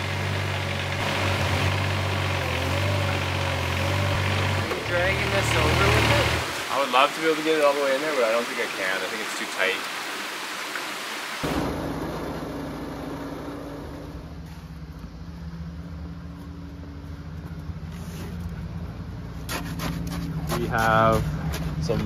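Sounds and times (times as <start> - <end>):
cement mixer engine running: 0.0 - 8.4.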